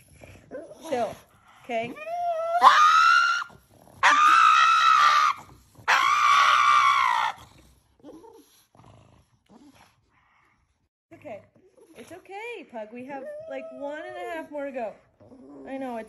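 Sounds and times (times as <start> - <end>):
dog screaming: 2.2 - 7.4.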